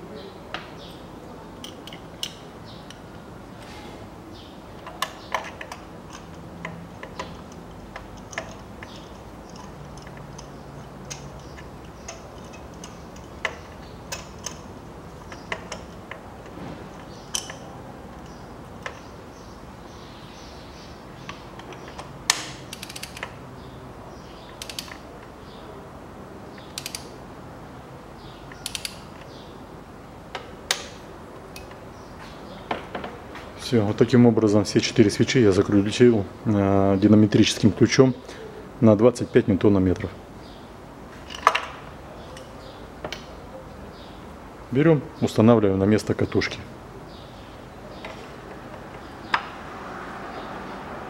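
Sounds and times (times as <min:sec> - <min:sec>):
metal tools clinking: 0:04.8 - 0:16.2
sharp wrench clicks: 0:04.8 - 0:16.3, 0:17.0 - 0:19.1, 0:21.2 - 0:23.4, 0:24.5 - 0:25.0, 0:26.6 - 0:27.2, 0:28.5 - 0:29.4.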